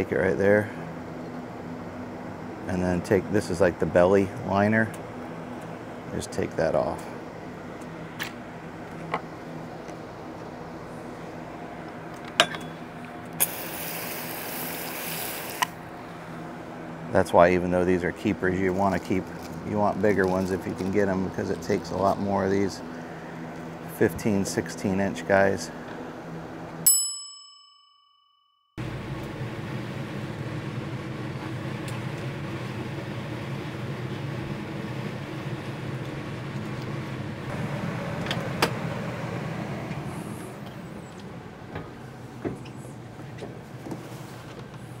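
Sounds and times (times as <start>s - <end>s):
steady mechanical hum: 0.0s - 26.9s, 28.8s - 45.0s
hose nozzle water spray hissing: 13.4s - 15.7s
bell-like ding: 26.9s - 28.7s.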